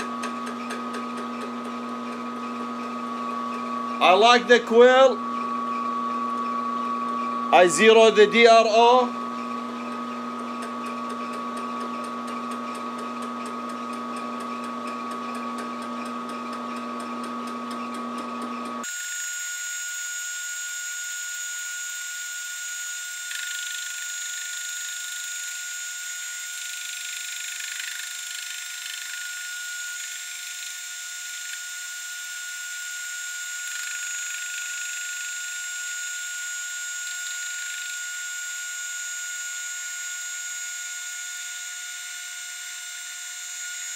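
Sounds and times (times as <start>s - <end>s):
low machine hum: 0.0s - 18.8s
milling machine fly cutter cutting: 0.0s - 43.9s.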